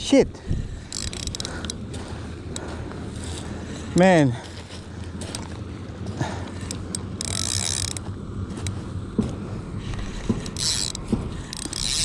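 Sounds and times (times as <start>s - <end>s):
fishing reel gears whirring: 0.7s - 3.6s, 5.2s - 5.5s, 6.6s - 8.8s, 9.8s - 12.0s
sharp clicks: 0.9s - 1.8s, 6.6s - 8.0s, 10.3s - 12.0s.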